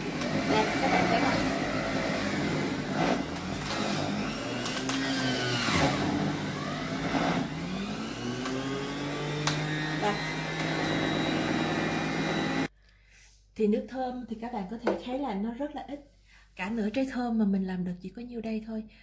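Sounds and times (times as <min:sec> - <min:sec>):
juicer motor hum: 0:00.0 - 0:12.7.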